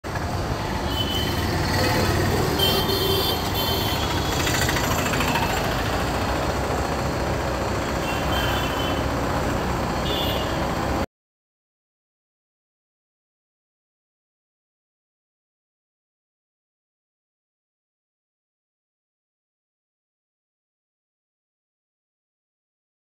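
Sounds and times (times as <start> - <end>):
scooter engine rumble: 0.1 - 11.0.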